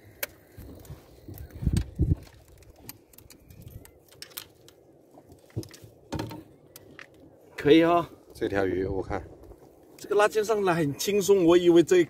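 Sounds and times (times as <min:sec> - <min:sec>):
fishing tackle clicks and rustles: 0:00.0 - 0:08.4.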